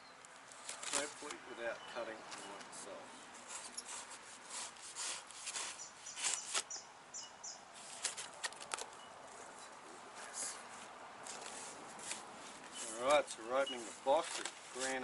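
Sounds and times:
knife slitting packing tape: 0:03.5 - 0:06.8, 0:07.9 - 0:08.9.

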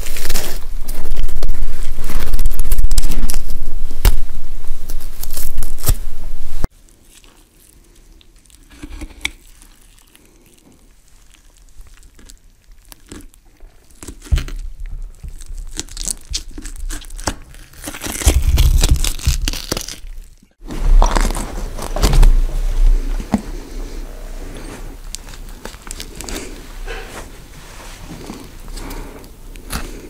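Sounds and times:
crunching and tearing effect: 0:00.0 - 0:22.9.

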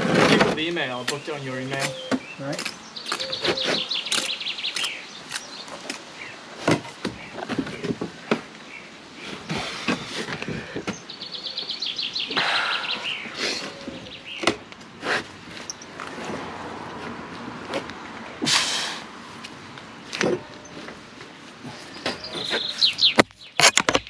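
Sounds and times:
bird trilling: 0:02.9 - 0:05.1.

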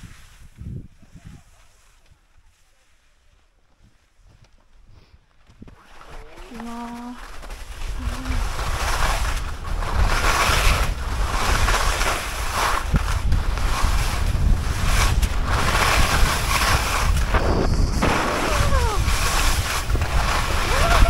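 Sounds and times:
wind buffeting microphone: 0:00.0 - 0:01.6, 0:07.7 - 0:21.0.

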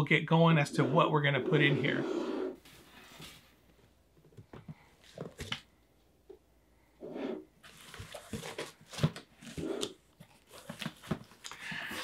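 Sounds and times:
cardboard rustling and crinkling: 0:07.6 - 0:09.6, 0:10.2 - 0:12.0.

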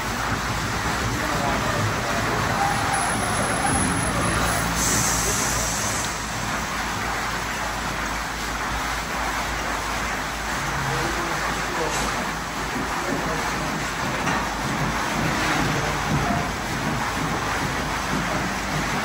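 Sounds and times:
machinery hum: 0:00.0 - 0:09.3
water spray: 0:00.0 - 0:19.0
brief high hiss: 0:04.6 - 0:06.4.

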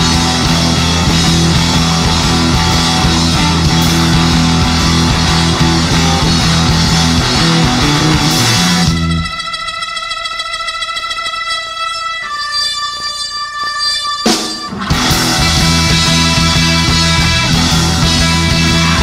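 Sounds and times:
drum kit: 0:00.0 - 0:09.4, 0:14.2 - 0:19.0
electric guitar: 0:00.0 - 0:09.6, 0:14.2 - 0:19.0
bass guitar: 0:00.0 - 0:09.7, 0:14.3 - 0:19.0
held chord ringing: 0:00.0 - 0:19.0
organ: 0:00.0 - 0:19.0.

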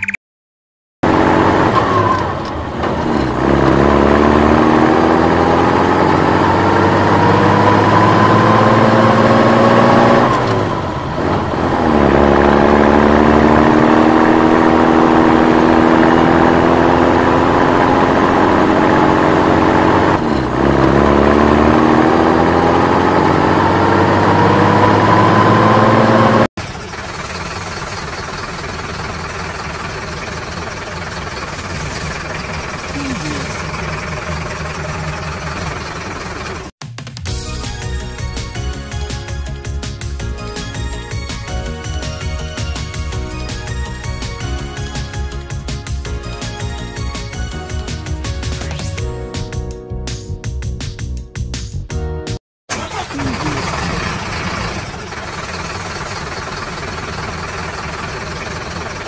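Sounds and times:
engine revving: 0:01.0 - 0:36.8, 0:52.7 - 0:59.0.

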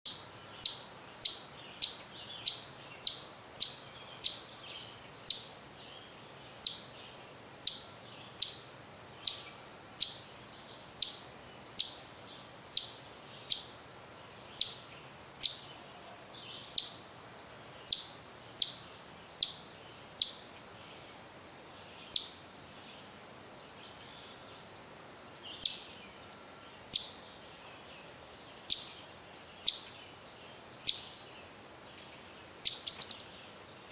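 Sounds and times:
chipmunk chip alarm call: 0:00.1 - 0:05.6, 0:06.5 - 0:13.8, 0:14.4 - 0:17.1, 0:17.8 - 0:20.6, 0:22.0 - 0:22.6, 0:25.4 - 0:27.4, 0:28.5 - 0:31.3, 0:32.6 - 0:33.9.

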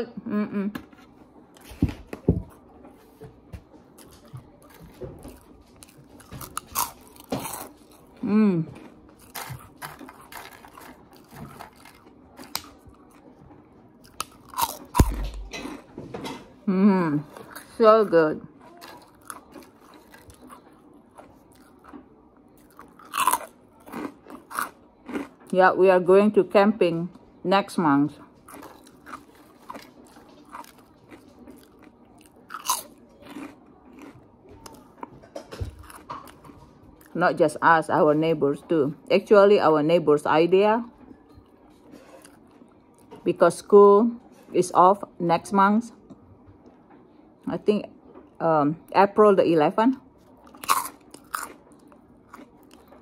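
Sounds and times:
chewing crispy pork rinds: 0:03.8 - 0:16.4, 0:17.2 - 0:25.6, 0:28.1 - 0:37.2, 0:50.0 - 0:53.0.

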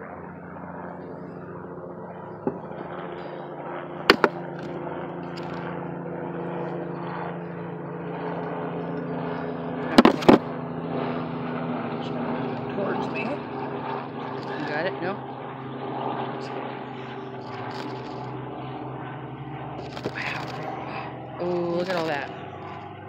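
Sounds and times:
bees buzzing: 0:04.0 - 0:04.7.

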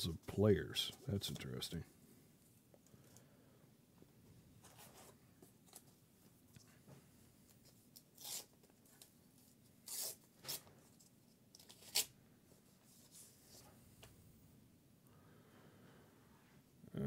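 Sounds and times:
wrapper being torn open: 0:08.0 - 0:08.5, 0:11.6 - 0:12.2.

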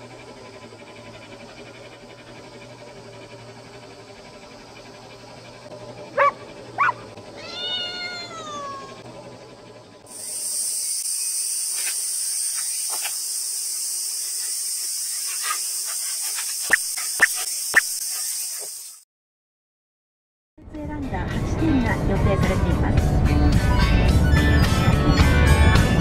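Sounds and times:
dog barks: 0:06.2 - 0:07.0
cat meowing: 0:07.4 - 0:09.0
high-pitched hiss: 0:10.1 - 0:19.0.

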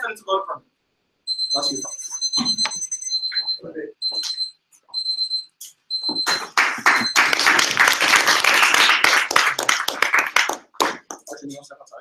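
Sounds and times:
electronic timer beeping: 0:01.3 - 0:07.3
applause: 0:06.3 - 0:11.4.

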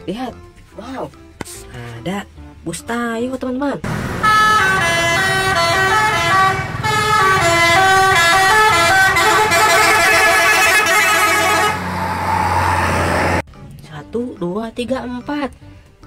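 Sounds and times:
multi-tone bus air horn tune: 0:04.1 - 0:12.0.

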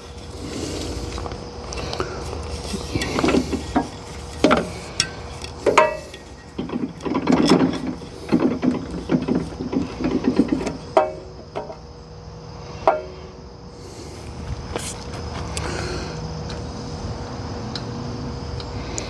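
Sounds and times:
engine cranked by hand: 0:00.0 - 0:12.0.

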